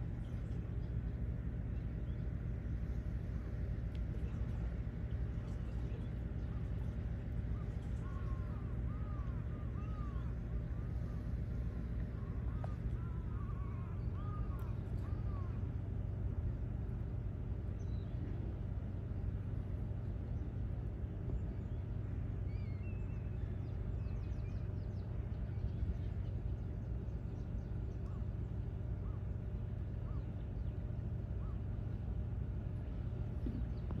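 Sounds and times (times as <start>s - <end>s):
low rumble: 0.0s - 34.0s.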